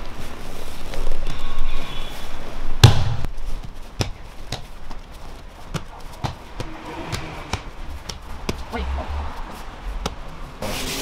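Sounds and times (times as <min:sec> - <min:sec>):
heavy thud: 0:02.8 - 0:03.3.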